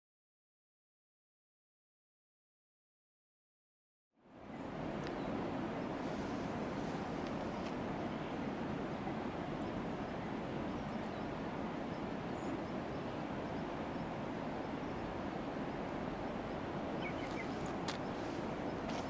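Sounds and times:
steady rushing outdoor noise: 4.2 - 19.0.

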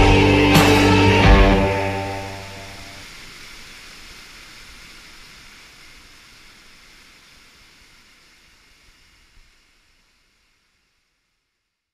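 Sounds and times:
river rapids rushing: 0.0 - 5.9.

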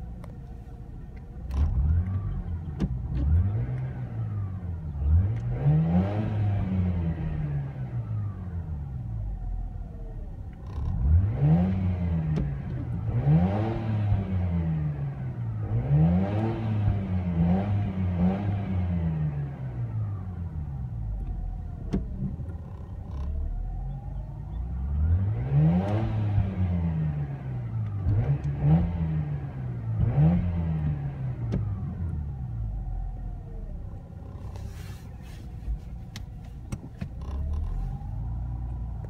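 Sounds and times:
rotary engine revving: 10.6 - 20.2, 24.8 - 33.2.

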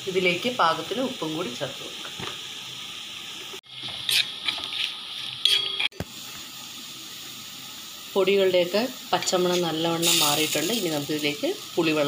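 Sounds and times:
spices sizzling in oil: 0.0 - 12.0
metal spatula scraping pan: 3.8 - 6.0.

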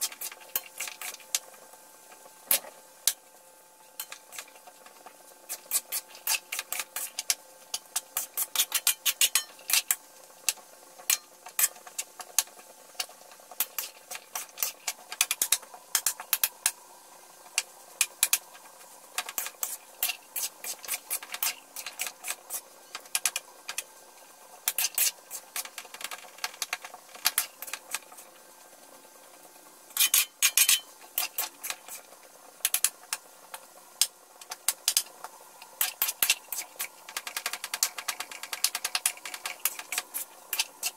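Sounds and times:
faint steady hum: 0.0 - 40.9
metal spatula scraping a wok: 19.4 - 22.6, 24.7 - 25.7, 29.9 - 32.1.

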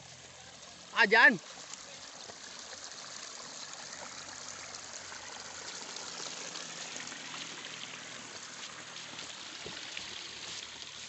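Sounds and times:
stream trickling over rocks: 0.0 - 11.0.

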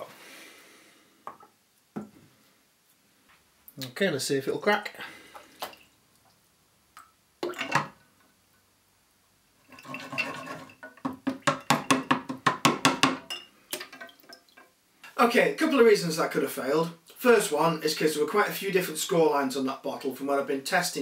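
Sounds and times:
water sloshing: 9.6 - 11.0.

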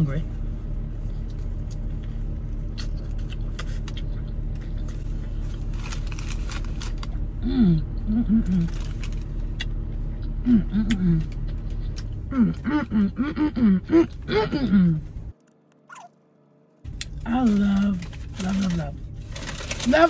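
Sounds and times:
car idling hum: 0.0 - 20.0
person chewing food: 8.8 - 12.6.

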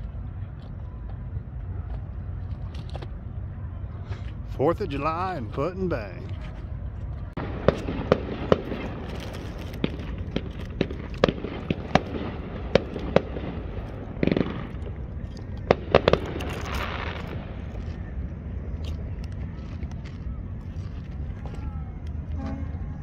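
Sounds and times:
steady low rumble: 0.0 - 23.0
fireworks popping: 7.4 - 18.2.

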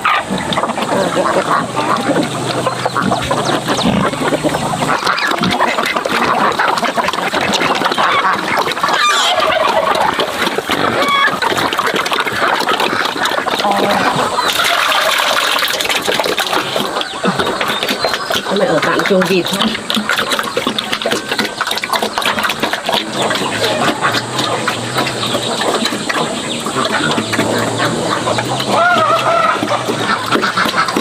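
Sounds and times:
ducks quacking: 0.0 - 31.0.

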